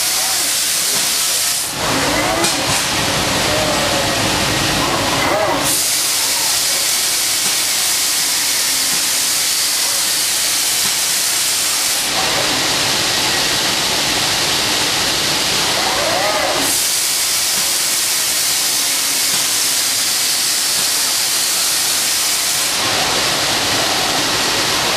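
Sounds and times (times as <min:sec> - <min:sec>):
spray gun hissing compressed air: 0:00.0 - 0:01.8, 0:05.6 - 0:12.1, 0:16.6 - 0:23.0.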